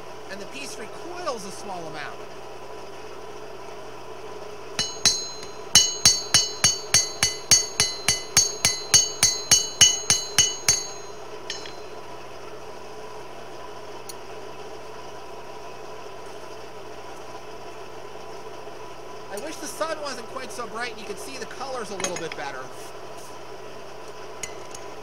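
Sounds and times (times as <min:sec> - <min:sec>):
steady low hum: 0:00.0 - 0:25.0
hammer ringing on hot steel: 0:04.8 - 0:12.1.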